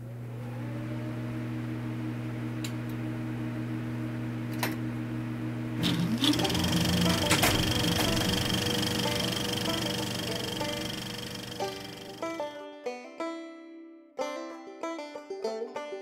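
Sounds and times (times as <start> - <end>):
low machine hum: 0.0 - 12.5
machine running with high tone: 5.8 - 12.5
short rising whine: 5.8 - 12.5.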